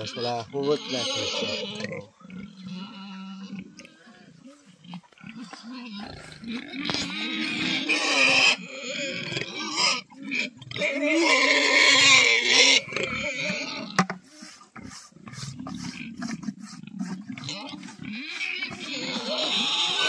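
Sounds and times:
pig squealing: 0.0s - 3.7s, 5.2s - 14.0s, 17.0s - 20.0s
pig grunts: 0.0s - 14.0s, 14.8s - 20.0s.

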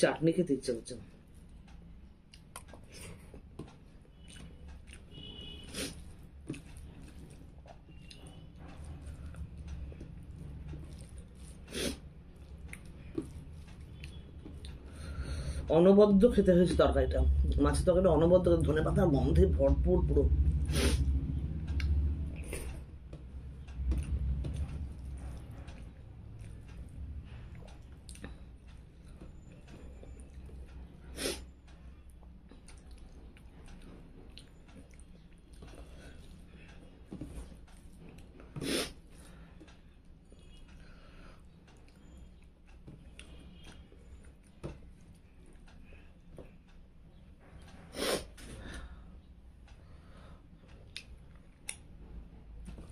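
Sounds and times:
person chewing food: 2.2s - 15.6s, 20.6s - 46.7s
fingers mixing rice on plate: 5.7s - 11.8s
low hum: 16.7s - 37.4s.

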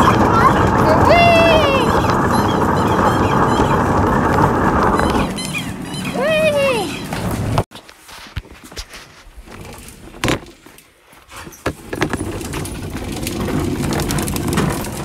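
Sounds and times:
toy car wheels rolling on floor: 0.0s - 7.6s, 11.4s - 15.0s.

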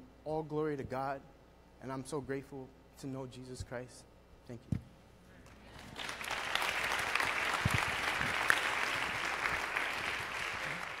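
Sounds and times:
audience applauding: 5.7s - 11.0s.

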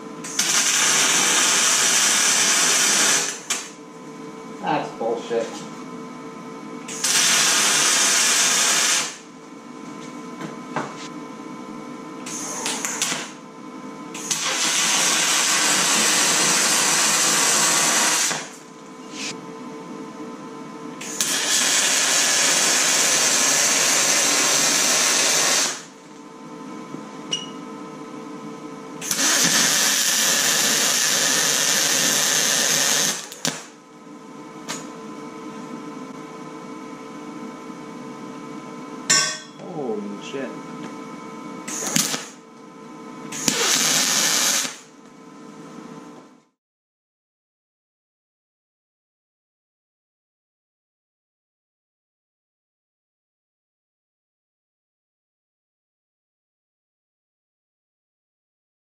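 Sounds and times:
welding arc hissing and crackling: 0.3s - 3.7s, 6.9s - 9.2s, 14.2s - 19.3s, 21.0s - 25.9s, 29.0s - 33.7s, 41.7s - 42.4s, 43.4s - 44.9s
steady hum: 3.3s - 6.9s.

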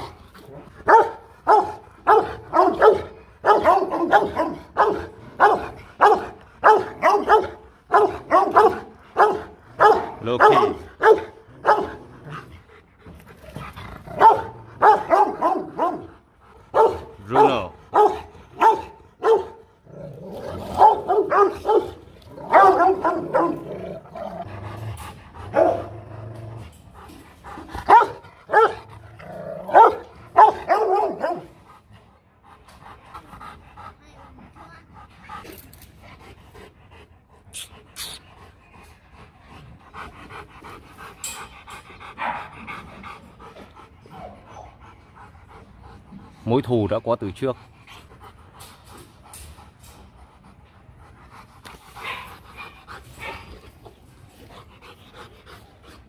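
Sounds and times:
dogs panting: 0.0s - 56.0s
dogs barking deeply: 0.8s - 12.5s, 14.0s - 26.7s, 27.6s - 31.6s.

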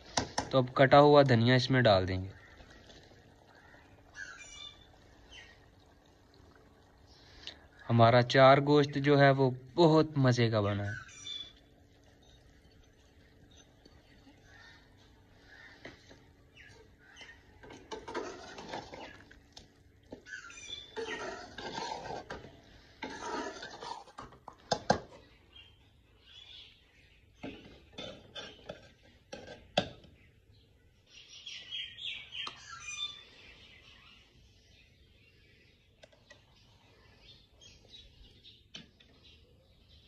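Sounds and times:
birds chirping: 0.0s - 40.0s
spatula scraping metal pot: 17.6s - 19.4s, 20.2s - 25.0s, 27.5s - 29.7s.

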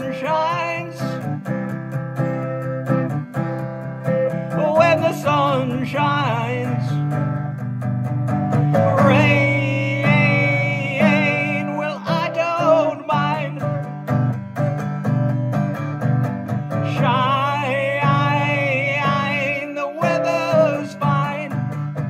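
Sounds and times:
strummed acoustic guitar: 0.0s - 22.0s
wavering lead guitar melody: 0.0s - 22.0s.

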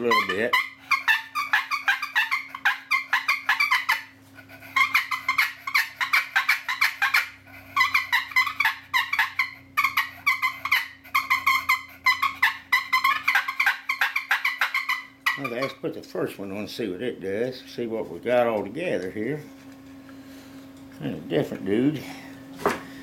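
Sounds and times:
turkey call raspy notes: 0.0s - 15.8s
faint steady hum: 0.0s - 23.0s.

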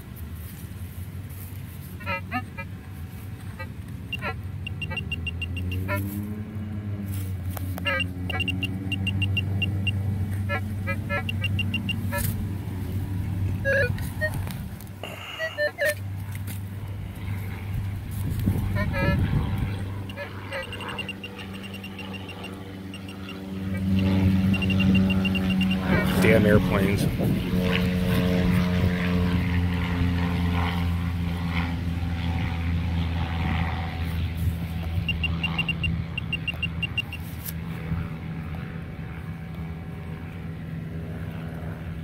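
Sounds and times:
low engine drone: 0.0s - 42.0s
pinpointer beeping: 4.1s - 6.0s, 7.8s - 12.3s, 13.6s - 14.4s, 20.0s - 26.2s, 35.0s - 37.2s.

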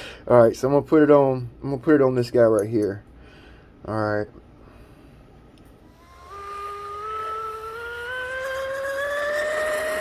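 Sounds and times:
rc boat motor whine: 5.8s - 10.0s.

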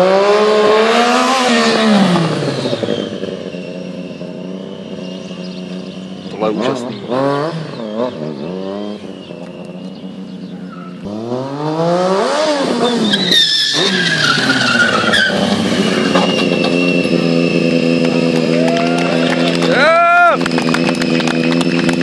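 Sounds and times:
motorcycle engine revving: 0.0s - 22.0s
tyres squealing and scraping: 12.8s - 18.0s.

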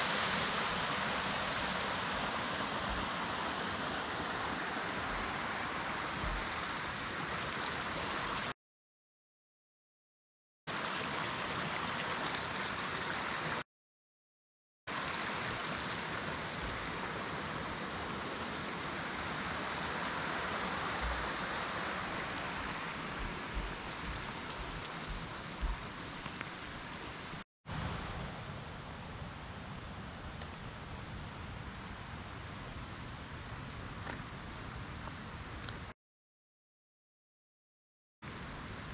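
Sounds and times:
flowing water rushing: 0.0s - 8.6s, 10.7s - 13.6s, 14.9s - 28.3s
soft low thumps: 23.1s - 26.0s.

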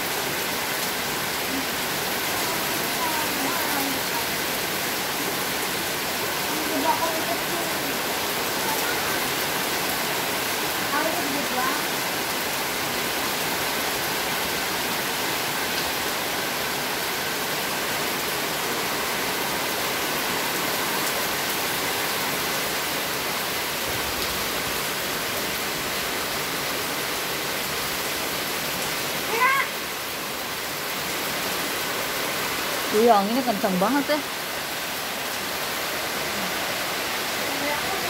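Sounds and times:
heavy rain on paving and leaves: 0.0s - 38.0s.

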